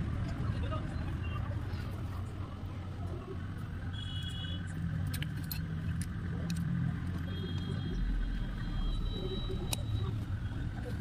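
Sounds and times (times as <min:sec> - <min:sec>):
metallic clicks of engine parts: 0:04.2 - 0:08.1.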